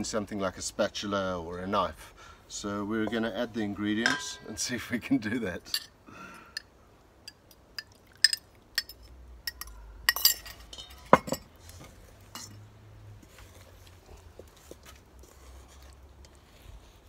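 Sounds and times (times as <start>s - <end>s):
metal spoon clinking and scraping bowl: 3.0s - 4.7s, 7.3s - 11.6s, 12.3s - 12.6s.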